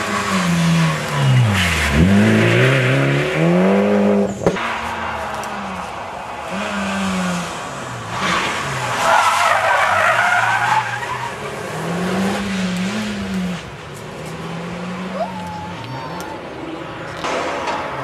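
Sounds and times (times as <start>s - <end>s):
car engine revving: 0.0s - 15.2s
tyres squealing: 8.2s - 11.8s.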